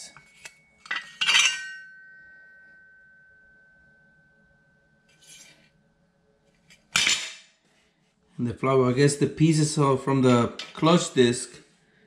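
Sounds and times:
metal parts clanking and ringing: 0:00.0 - 0:02.8
soft metal clink: 0:00.0 - 0:04.4.

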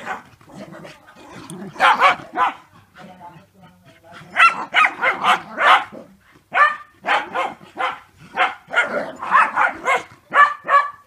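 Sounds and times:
dog barking: 0:01.8 - 0:02.7, 0:04.4 - 0:11.0.

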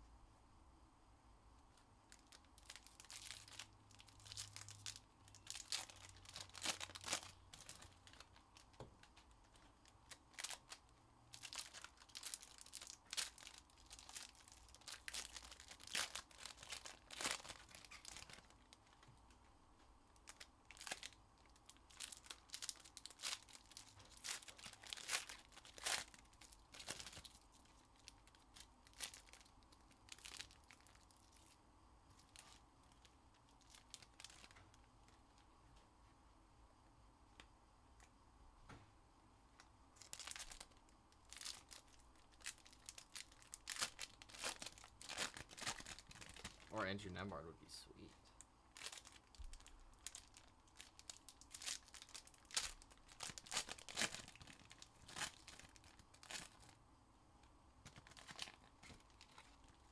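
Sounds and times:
foil wrappers crinkling and tearing: 0:02.1 - 0:19.1, 0:20.2 - 0:31.6, 0:32.2 - 0:34.8, 0:40.0 - 0:46.7, 0:48.7 - 0:56.8, 0:57.8 - 0:59.9.

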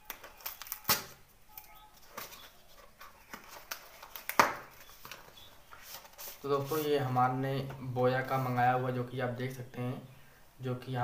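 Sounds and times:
paper parcel being torn open: 0:00.0 - 0:01.2.

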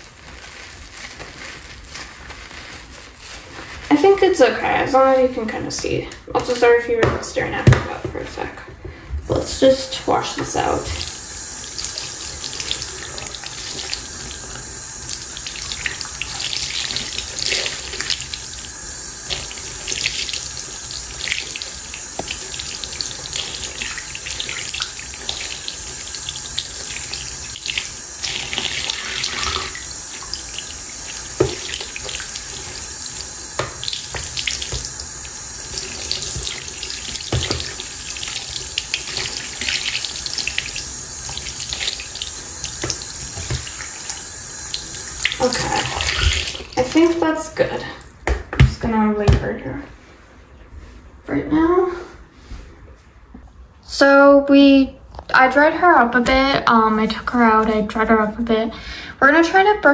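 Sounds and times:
faucet running: 0:03.9 - 0:08.0, 0:09.2 - 0:48.2.

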